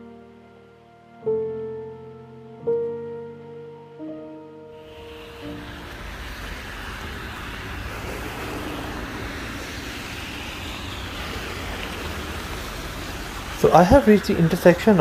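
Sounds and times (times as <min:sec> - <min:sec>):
road traffic passing: 0:04.4 - 0:15.0.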